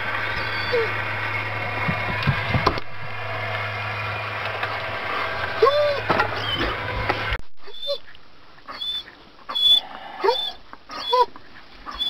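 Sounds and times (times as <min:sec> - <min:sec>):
steady low hum: 0:00.0 - 0:12.0
dog whining: 0:00.4 - 0:01.0, 0:05.6 - 0:07.0, 0:07.6 - 0:08.1, 0:08.7 - 0:12.0.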